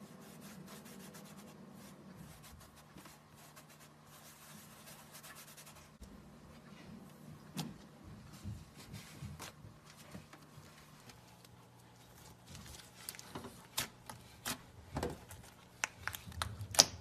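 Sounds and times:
fingertip scratching powder on slime: 0:00.0 - 0:06.0.

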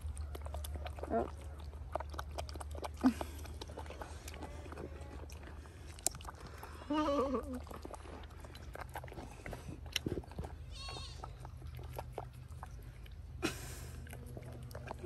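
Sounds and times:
goat chewing and slurping: 0:00.0 - 0:15.0.

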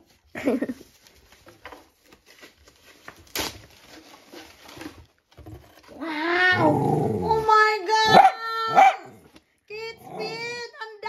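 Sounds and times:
paper and plastic rustling: 0:00.0 - 0:06.0.

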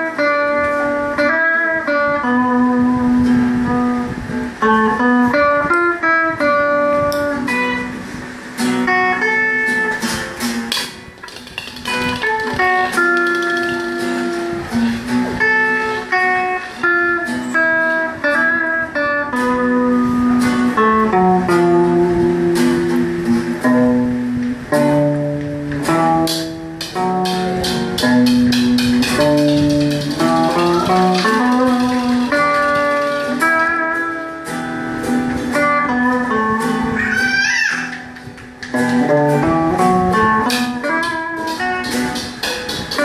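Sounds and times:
electric guitar through amp: 0:00.0 - 0:43.0
nylon-string classical guitar: 0:00.0 - 0:43.0.

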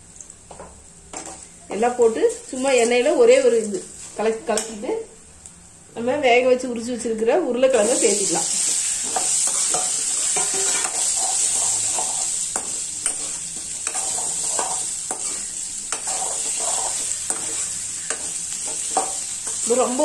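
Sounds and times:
potatoes sizzling in hot oil: 0:00.0 - 0:04.8, 0:07.6 - 0:20.0
metal spoon scraping pan: 0:09.0 - 0:19.8.

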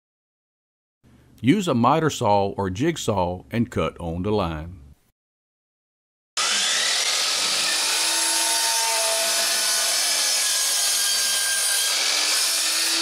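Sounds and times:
miter saw cutting plastic: 0:06.4 - 0:13.0.

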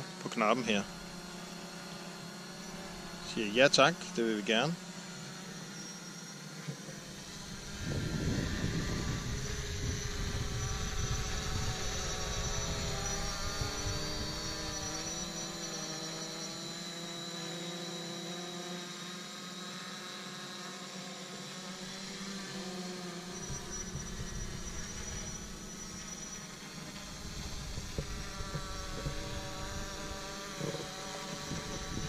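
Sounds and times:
drone propellers whining: 0:00.0 - 0:32.0.

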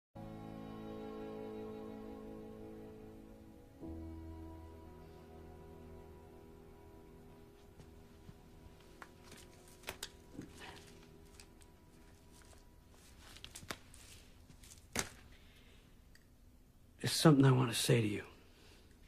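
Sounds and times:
held music chord: 0:00.2 - 0:13.2
faint rustling: 0:07.5 - 0:16.1.

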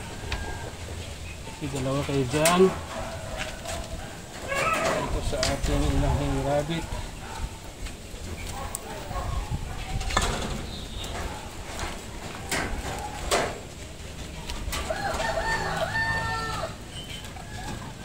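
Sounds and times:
rooster crowing: 0:00.0 - 0:01.0, 0:02.6 - 0:05.2, 0:14.7 - 0:18.0
knocks and clicks from cages: 0:00.0 - 0:18.0.

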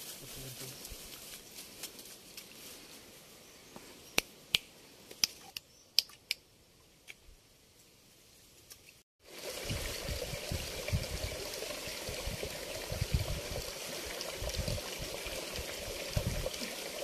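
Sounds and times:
rustling in dry grass: 0:00.0 - 0:04.1
sharp snaps and clicks: 0:04.1 - 0:06.4.

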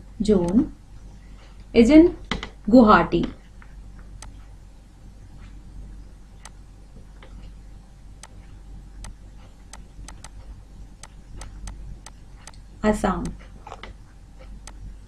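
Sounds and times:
low steady hum: 0:00.0 - 0:15.0
stylus tapping on pen tablet: 0:09.0 - 0:10.4.

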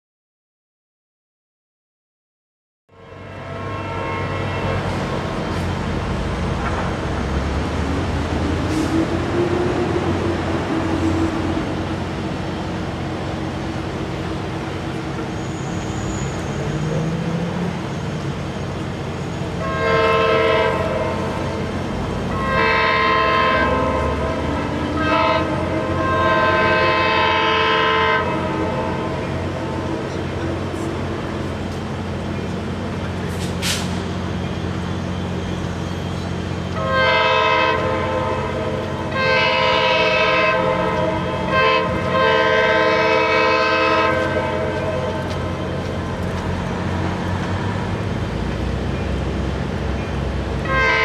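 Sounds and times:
train air horn chords: 0:02.9 - 0:05.9, 0:19.3 - 0:30.1, 0:36.8 - 0:45.6, 0:50.6 - 0:51.0.

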